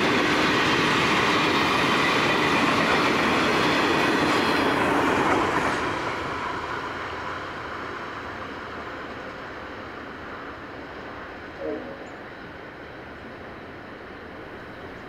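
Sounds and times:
freight train wheels on rails: 0.0 - 15.0
train rumble: 0.0 - 15.0.

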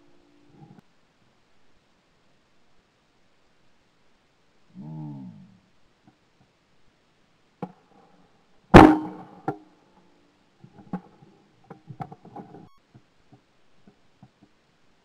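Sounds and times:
shotgun shot: 8.8 - 9.4
gun handling clicks and knocks: 10.6 - 14.6.

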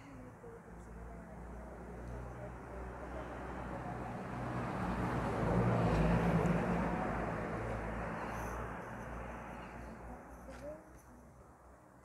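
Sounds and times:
motor vehicle passing by: 1.3 - 10.8.

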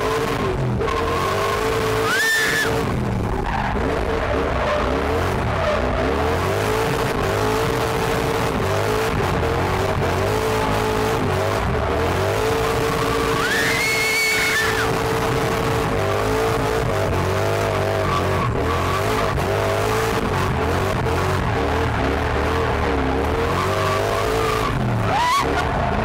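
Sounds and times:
car engine revving: 0.0 - 26.0
tyres squealing: 13.3 - 14.9.

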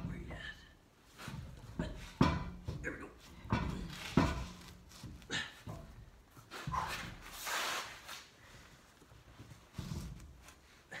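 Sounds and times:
wheel knocking and scraping: 1.2 - 7.2.

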